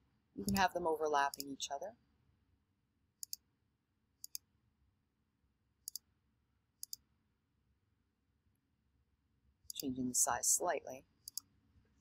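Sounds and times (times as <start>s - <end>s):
computer mouse clicks: 3.2s - 3.4s, 4.2s - 4.4s, 6.8s - 7.0s, 11.2s - 11.5s.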